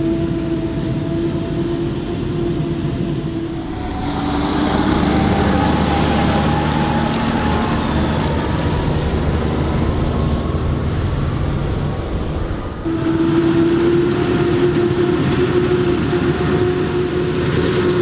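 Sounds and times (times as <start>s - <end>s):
harvester chopper high whine: 0.0s - 18.0s
harvester engine: 0.0s - 18.0s
tractor driving past on gravel: 3.4s - 18.0s.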